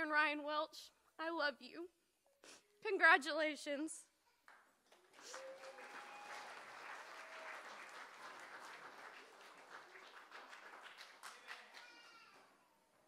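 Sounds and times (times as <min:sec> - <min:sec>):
guests applauding: 0:04.5 - 0:13.0.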